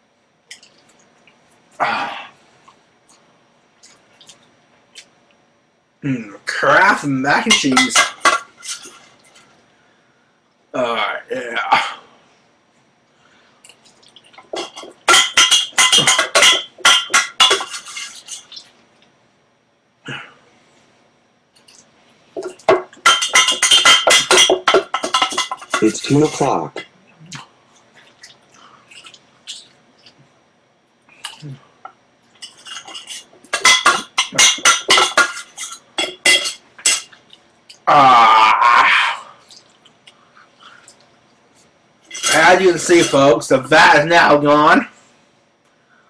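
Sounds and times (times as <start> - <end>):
metal pot clattering and scraping: 7.5 - 9.1, 14.4 - 18.5, 22.4 - 26.9, 32.4 - 37.2, 42.1 - 43.3.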